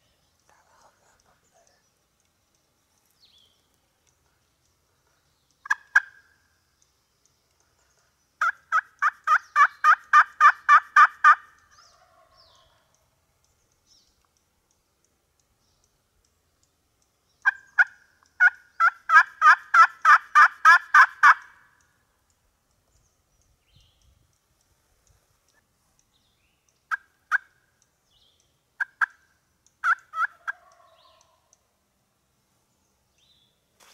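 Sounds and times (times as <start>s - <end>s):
turkey yelping: 5.7s - 6.2s, 8.4s - 12.8s, 17.4s - 21.6s, 29.8s - 31.4s.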